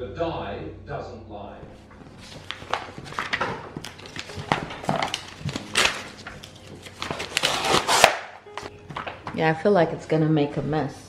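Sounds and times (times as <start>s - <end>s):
paper rustling and crackling: 1.7s - 9.5s.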